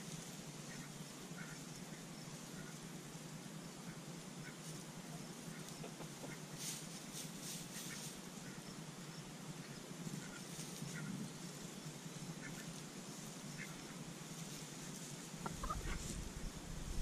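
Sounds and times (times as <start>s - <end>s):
outdoor hiss: 0.0s - 17.0s
hens clucking softly: 0.5s - 8.8s, 9.6s - 11.3s, 12.3s - 16.4s
scratchy rustles: 6.5s - 8.2s, 14.3s - 16.4s.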